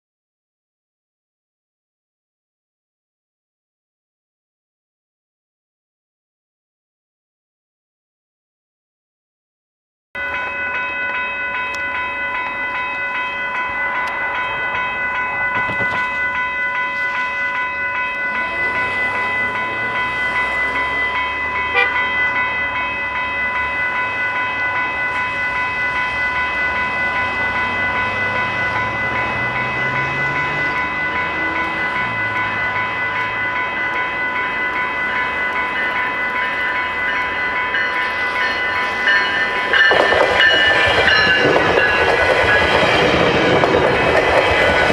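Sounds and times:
level crossing warning bell: 0:10.2 - 0:44.9
rumble of passing traffic: 0:10.2 - 0:44.9.

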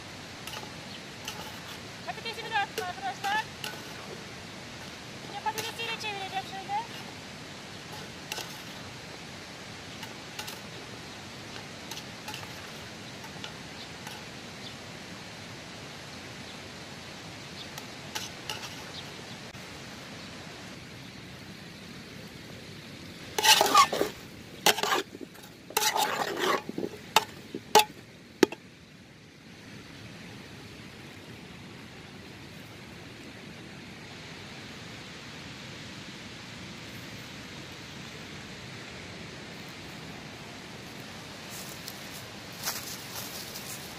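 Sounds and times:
food frying hiss: 0:00.0 - 0:29.8, 0:36.4 - 0:43.9
metal ladle scraping in a pot: 0:00.4 - 0:01.9, 0:02.7 - 0:04.2, 0:06.9 - 0:07.2, 0:07.8 - 0:08.9, 0:10.0 - 0:10.7, 0:11.5 - 0:14.3, 0:18.2 - 0:19.0, 0:23.4 - 0:28.6
ladle clinking against pot: 0:24.7 - 0:28.6.

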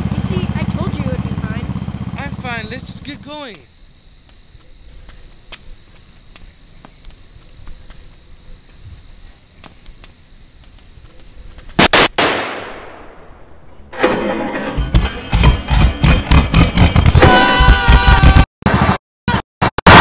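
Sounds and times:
crickets chirping: 0:00.4 - 0:11.9
loud sharp bangs: 0:11.8 - 0:14.3.

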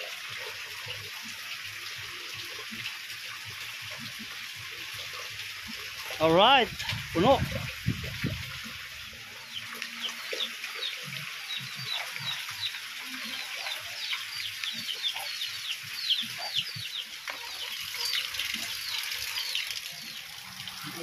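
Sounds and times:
chicks peeping: 0:09.5 - 0:20.1.

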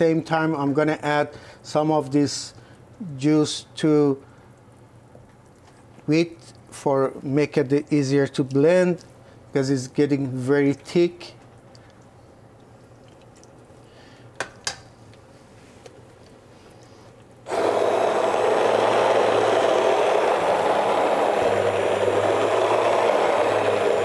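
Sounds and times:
hand blender churning: 0:17.5 - 0:24.0.

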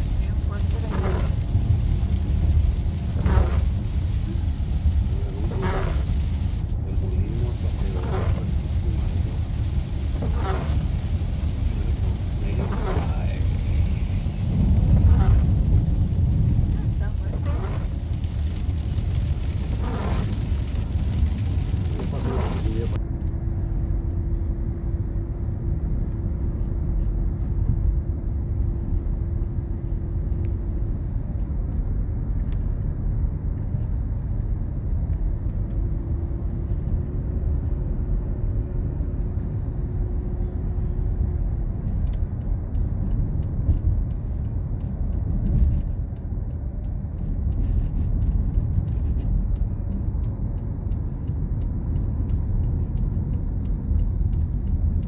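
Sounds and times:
car road and engine rumble: 0:00.0 - 0:55.0
faint light ticks: 0:41.8 - 0:55.0.

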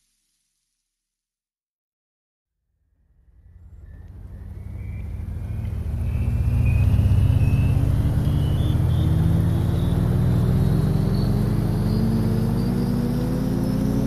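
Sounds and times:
engine speeding up: 0:03.0 - 0:14.0.

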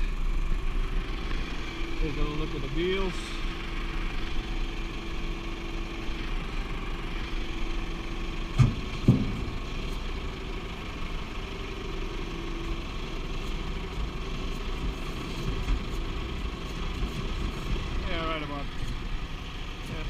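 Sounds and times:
diesel engine idling: 0:00.0 - 0:20.0
loud thumps: 0:08.6 - 0:09.5.

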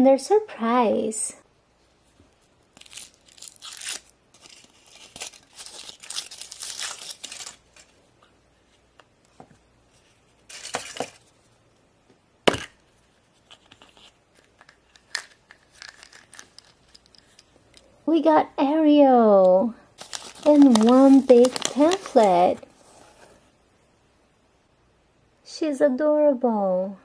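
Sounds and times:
foil wrapper crinkling: 0:02.6 - 0:08.0, 0:13.5 - 0:17.2, 0:20.0 - 0:22.7.

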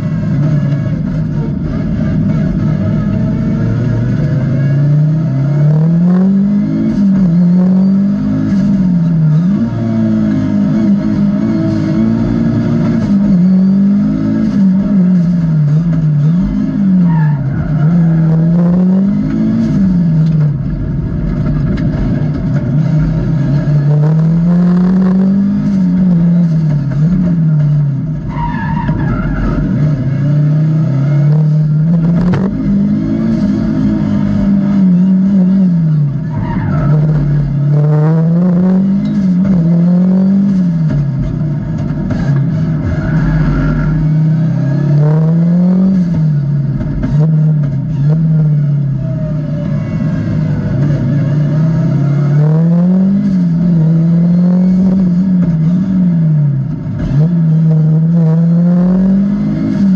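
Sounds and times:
rally car engine revving: 0:00.0 - 0:59.9
tyre squeal: 0:12.4 - 0:19.2, 0:27.6 - 0:30.0, 0:34.8 - 0:37.8.

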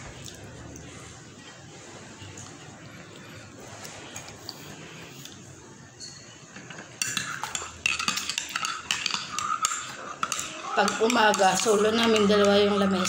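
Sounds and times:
cutlery and dishes clinking: 0:06.0 - 0:13.0.

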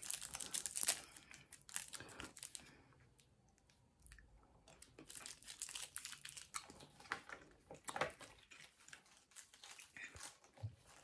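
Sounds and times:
chewing candy: 0:04.0 - 0:07.0.

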